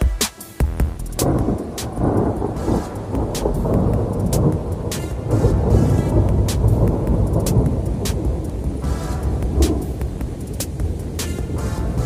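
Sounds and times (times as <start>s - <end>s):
distant thunder rumbling: 1.2s - 12.0s.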